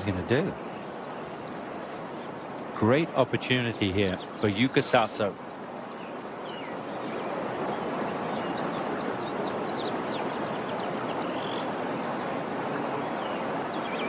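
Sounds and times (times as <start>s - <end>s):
birds chirping: 0.0s - 14.0s
steady outdoor hiss: 0.0s - 14.0s.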